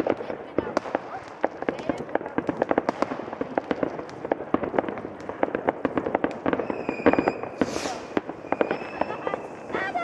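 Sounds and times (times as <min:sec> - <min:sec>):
fireworks popping and banging: 0:00.0 - 0:10.0.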